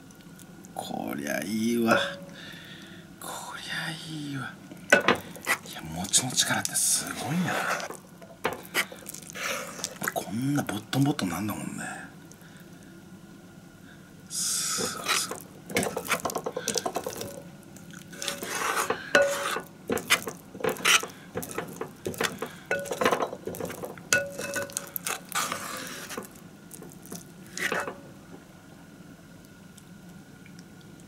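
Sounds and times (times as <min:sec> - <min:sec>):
utensil scraping and clinking pot: 0:14.8 - 0:17.4, 0:18.0 - 0:28.0.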